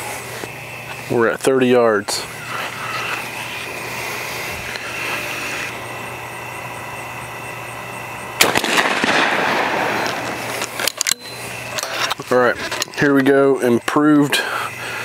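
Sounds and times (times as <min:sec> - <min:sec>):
shotgun shot with echo: 0:08.4 - 0:10.4.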